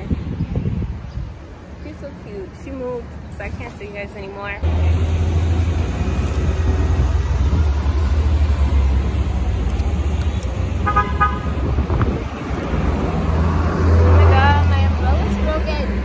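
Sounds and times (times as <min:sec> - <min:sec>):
street traffic rumble: 0:00.0 - 0:16.0
wind buffeting microphone: 0:00.0 - 0:16.0
vehicle horn toot: 0:10.8 - 0:11.6.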